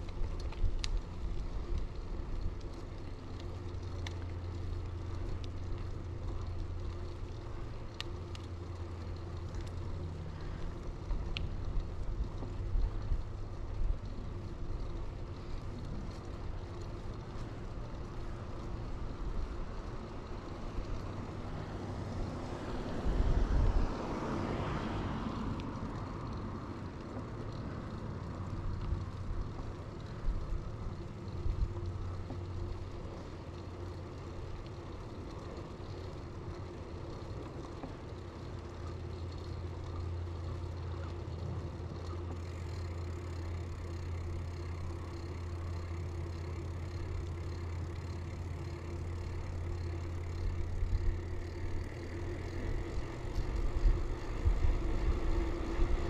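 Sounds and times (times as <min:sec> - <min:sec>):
bicycle tyres rumbling on road: 0:00.0 - 0:56.0
wind: 0:00.0 - 0:56.0
vehicle passing: 0:19.8 - 0:31.1, 0:42.5 - 0:56.0.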